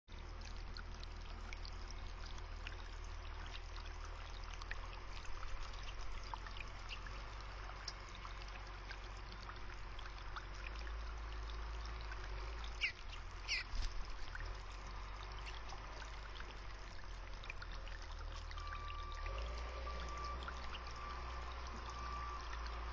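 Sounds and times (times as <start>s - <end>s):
low hum: 0.1s - 22.9s
water trickling into birdbath: 0.1s - 22.9s
high bird calls: 12.8s - 13.7s.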